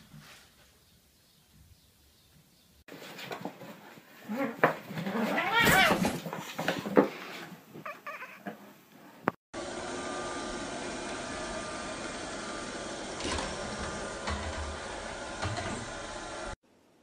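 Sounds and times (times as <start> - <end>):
robot vacuum cleaner whirring: 9.6 - 16.6.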